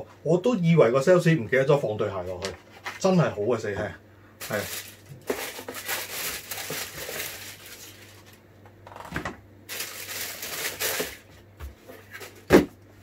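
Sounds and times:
packing wrap crinkling: 4.4s - 8.4s, 9.7s - 11.4s.

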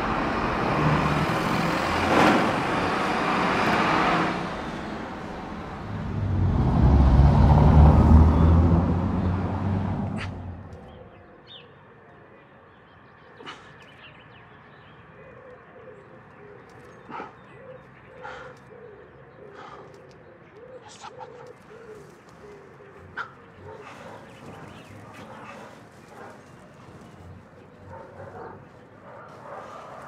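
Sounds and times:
pigeons cooing: 15.2s - 30.0s
dog barking: 17.0s - 17.5s, 18.2s - 18.6s, 21.0s - 30.0s.

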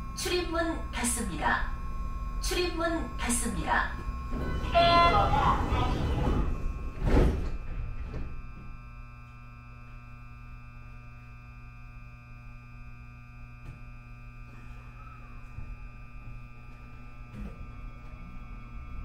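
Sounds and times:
electrical hum: 0.0s - 19.0s
faint high whine: 0.0s - 19.0s
sliding doors shutting: 4.3s - 8.4s.

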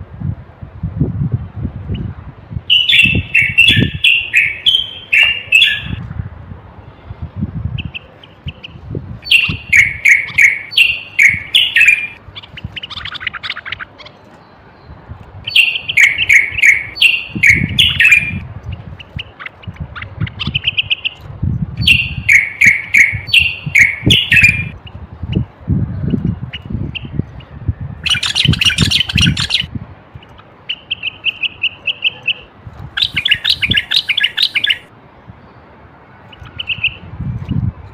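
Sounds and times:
bird singing whistled notes: 2.7s - 6.0s, 7.8s - 13.4s, 15.5s - 18.4s, 21.8s - 25.4s, 26.0s - 29.7s, 33.0s - 34.9s.

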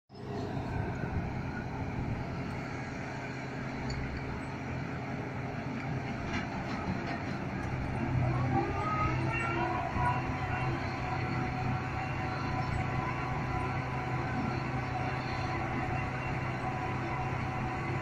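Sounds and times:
diesel engine running: 0.1s - 18.0s
hoist whine: 5.9s - 18.0s.

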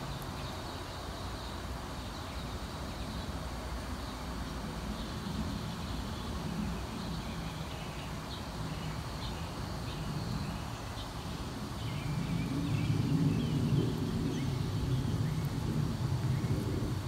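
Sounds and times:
small songbirds chirping: 0.0s - 17.0s
steady low rumble: 11.5s - 17.0s.

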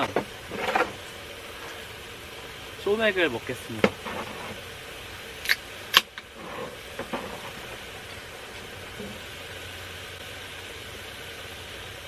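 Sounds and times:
steady hiss: 0.0s - 12.0s
can cracking open with a pop: 5.4s - 6.3s.

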